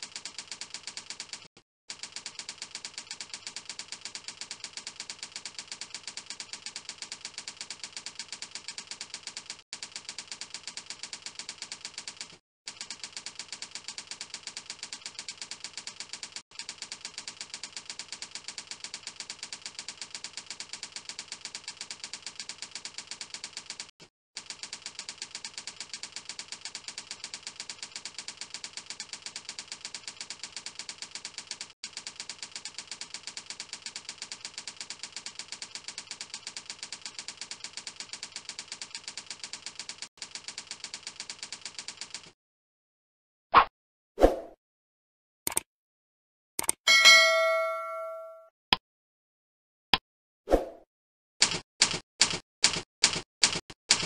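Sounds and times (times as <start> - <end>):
keyboard typing clicks: 45.5 - 45.7.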